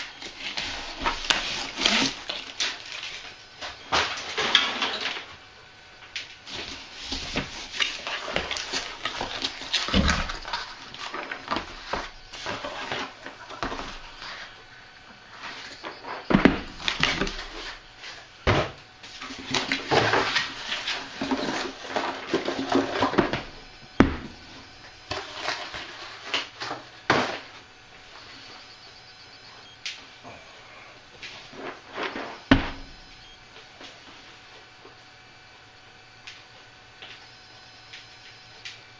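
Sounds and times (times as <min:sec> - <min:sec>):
cardboard scraping and crinkling: 0:00.3 - 0:03.3, 0:06.5 - 0:14.6, 0:25.1 - 0:27.6
knocks on boxes: 0:18.4 - 0:18.8, 0:23.2 - 0:24.4, 0:32.4 - 0:32.9.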